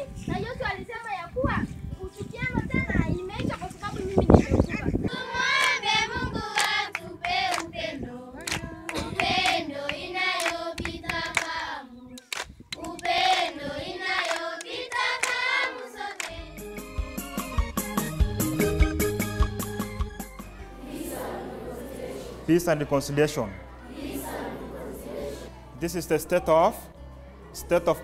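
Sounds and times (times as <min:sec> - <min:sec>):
children and adults singing: 0:05.0 - 0:16.5, 0:20.7 - 0:22.5, 0:23.8 - 0:25.6
hand clapping: 0:05.5 - 0:05.8, 0:06.6 - 0:07.7, 0:08.4 - 0:11.5, 0:12.2 - 0:13.6, 0:14.2 - 0:15.5, 0:16.2 - 0:16.4
instrumental music: 0:14.6 - 0:25.9.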